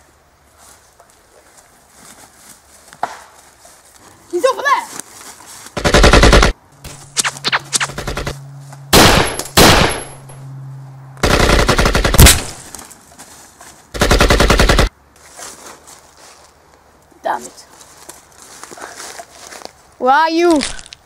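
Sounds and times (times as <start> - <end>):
automatic rifle fire: 5.8 - 6.6, 7.5 - 8.3, 9.0 - 10.2, 11.2 - 12.6, 14.0 - 14.9.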